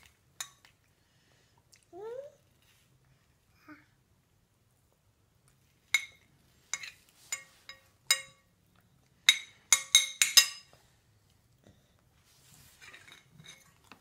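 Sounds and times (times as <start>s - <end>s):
metal spoon clinking on plate: 6.0s - 8.5s, 9.3s - 10.8s.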